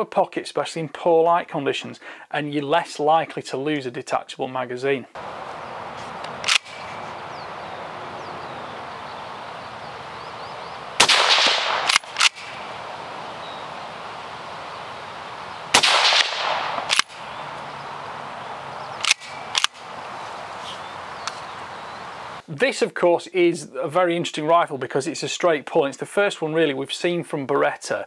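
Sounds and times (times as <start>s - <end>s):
rifle bolt clicks: 6.2s - 6.9s, 11.0s - 12.6s, 15.8s - 17.7s, 19.0s - 19.8s
suppressed rifle shots: 6.3s - 7.1s, 11.0s - 13.8s, 15.7s - 17.7s, 19.0s - 19.9s.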